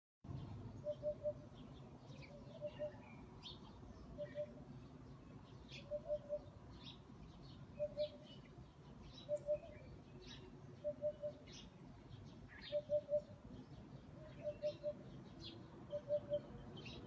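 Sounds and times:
small birds chirping: 0.3 - 17.0.

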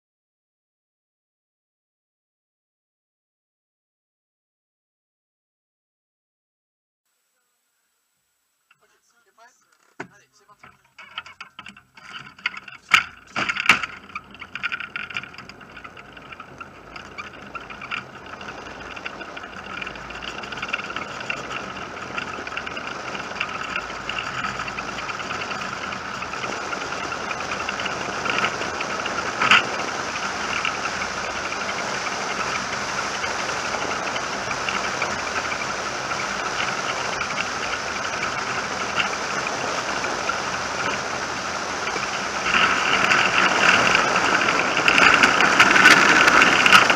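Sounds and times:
wheels rolling rattle on asphalt: 9.8 - 46.9.

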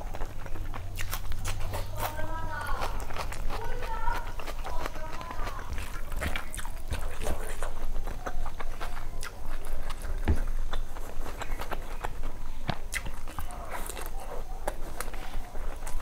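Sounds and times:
wet chewing and mouth smacking: 0.0 - 16.0.

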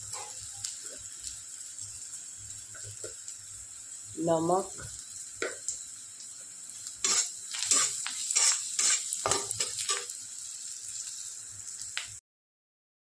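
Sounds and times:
onions sizzling in oil: 0.0 - 12.2
spatula scraping pan: 7.0 - 10.1.

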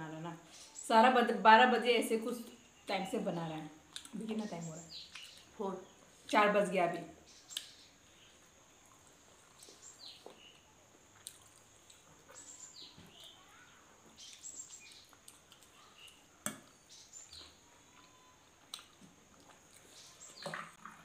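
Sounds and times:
faint chirps: 7.1 - 20.8
chewing noises: 8.8 - 21.0.

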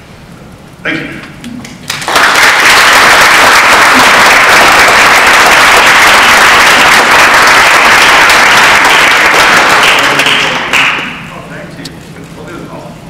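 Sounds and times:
audience applause: 1.8 - 11.2.

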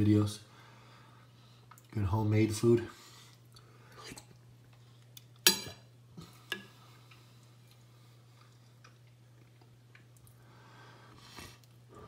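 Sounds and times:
metal spoon clinking ceramic bowl: 5.5 - 5.8.

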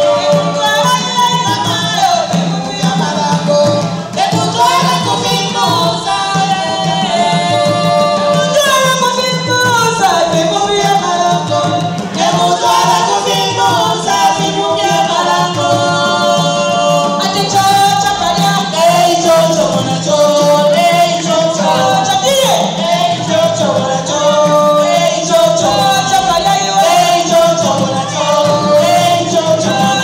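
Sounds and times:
group singing in chorus: 0.0 - 30.0
wooden hand drums beating: 0.0 - 30.0.

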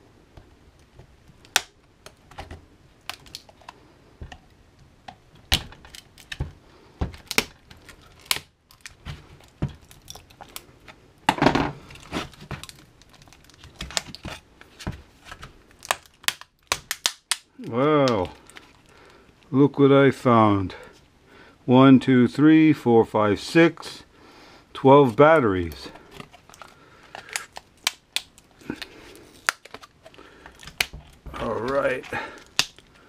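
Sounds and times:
plastic case cracking apart: 0.8 - 18.9, 25.6 - 32.9.

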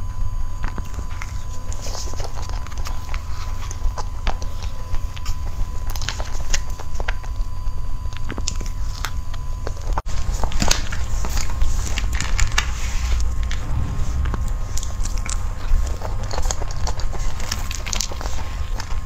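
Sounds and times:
steady low hum: 10.1 - 16.8.

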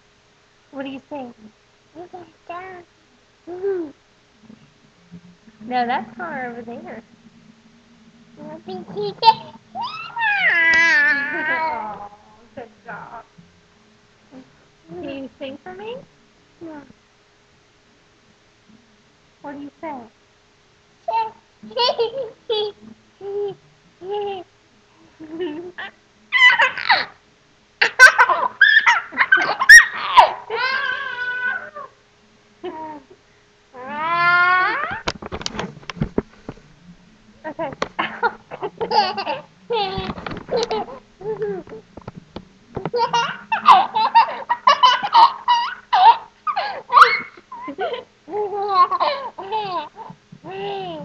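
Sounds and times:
child laughing and squealing: 9.1 - 12.0, 25.7 - 27.2, 27.8 - 31.9, 33.8 - 35.1, 42.9 - 51.0.

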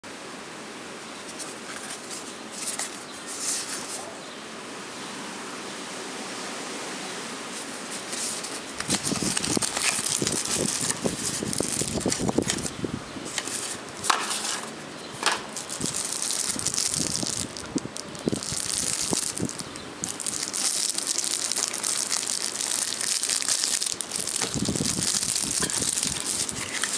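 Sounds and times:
cardboard box handling: 1.3 - 4.0, 7.9 - 14.8
plastic sleeve crinkling: 1.3 - 4.0, 7.6 - 26.9.

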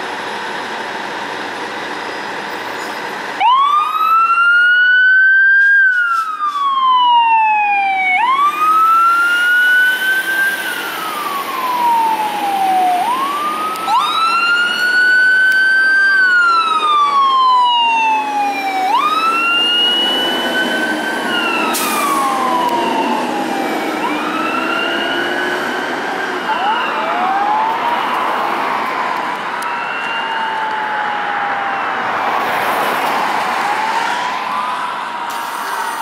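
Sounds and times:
wailing electronic sirens: 3.4 - 36.0
diesel truck engine pulling away: 8.3 - 28.7.

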